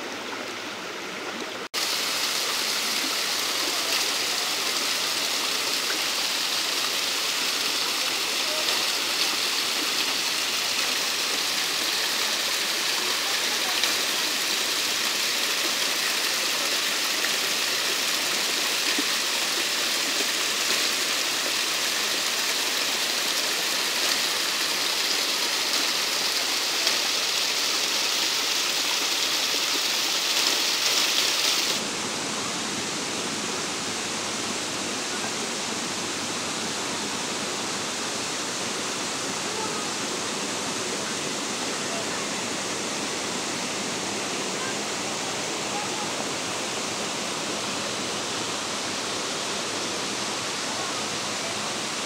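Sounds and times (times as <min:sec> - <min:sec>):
waterfall splashing onto rocks: 0:01.7 - 0:31.8.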